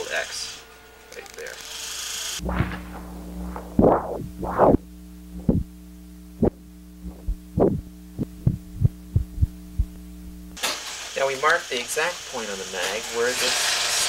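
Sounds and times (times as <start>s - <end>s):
electrical hum: 0.0s - 10.6s
footstep thumps: 2.4s - 4.8s, 5.4s - 5.7s, 6.4s - 10.6s.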